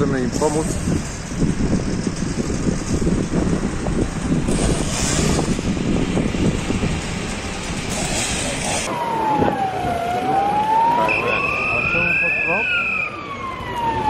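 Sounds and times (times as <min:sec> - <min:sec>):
diesel engine idling: 0:00.0 - 0:08.9
wind buffeting microphone: 0:00.0 - 0:10.6.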